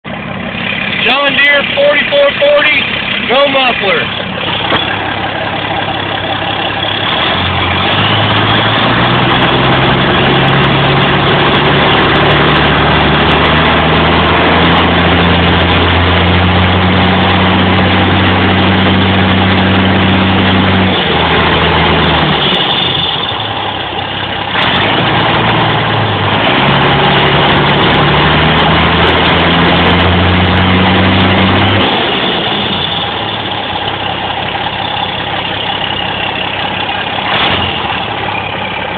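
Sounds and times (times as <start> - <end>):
diesel tractor engine revving: 0.0 - 38.9.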